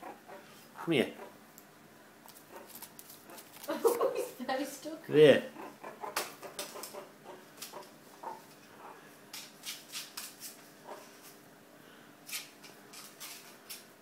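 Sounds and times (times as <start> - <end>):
claws scratching tiles: 2.3 - 4.1, 5.6 - 11.4, 12.3 - 14.0.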